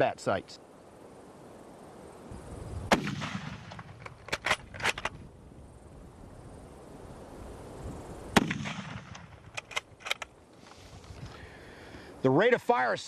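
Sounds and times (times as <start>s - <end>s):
rifle shots: 2.9s - 5.2s, 8.3s - 10.2s
rifle bolt metallic clicks: 3.1s - 5.2s, 8.6s - 10.4s.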